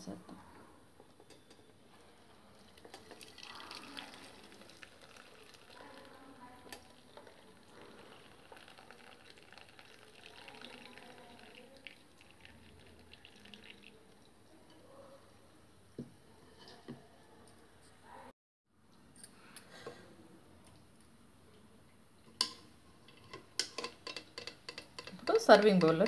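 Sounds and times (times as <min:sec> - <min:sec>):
liquid pouring through strainer: 0:02.5 - 0:14.3.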